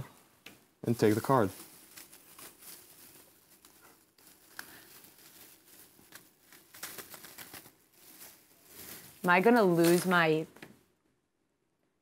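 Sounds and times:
plastic bag crinkling: 0:00.8 - 0:10.6
crushed ice shifting: 0:00.9 - 0:10.4.

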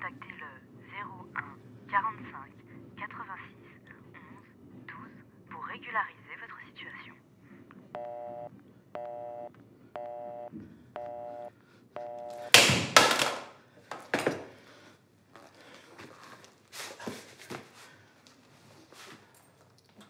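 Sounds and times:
telephone busy tone beeping: 0:08.0 - 0:12.5.

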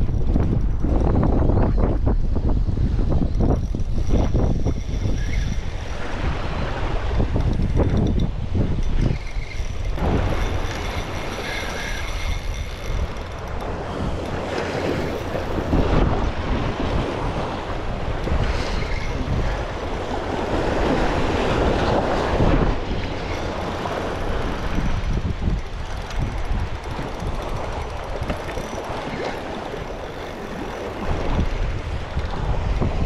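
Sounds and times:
wind buffeting microphone: 0:00.0 - 0:33.0
surf washing in: 0:05.8 - 0:07.5, 0:10.0 - 0:12.3, 0:13.6 - 0:25.5.

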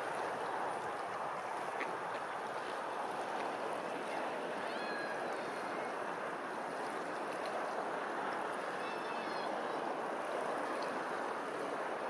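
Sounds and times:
rippling water rushing: 0:00.0 - 0:12.0.

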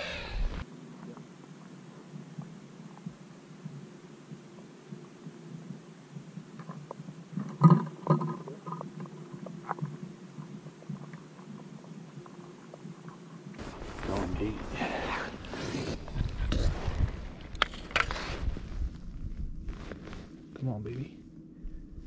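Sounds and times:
faint underwater clicks: 0:00.5 - 0:13.6.

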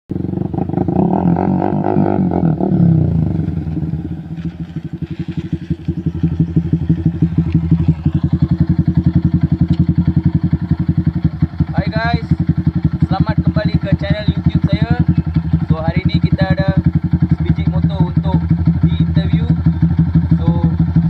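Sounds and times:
motorcycle engine: 0:00.1 - 0:21.0.

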